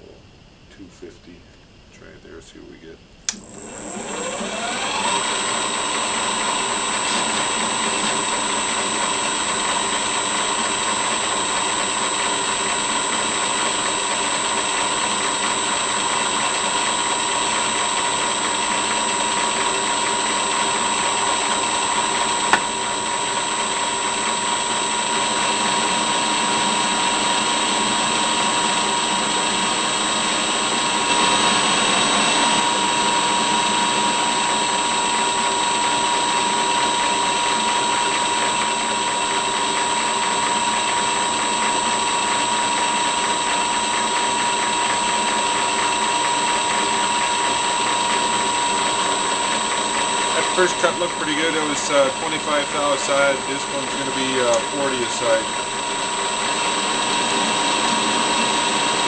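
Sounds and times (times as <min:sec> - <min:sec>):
single click: 0:03.2 - 0:03.5
lathe motor whining: 0:03.2 - 0:59.0
tool bit cutting steel: 0:05.2 - 0:43.6, 0:45.7 - 0:59.0.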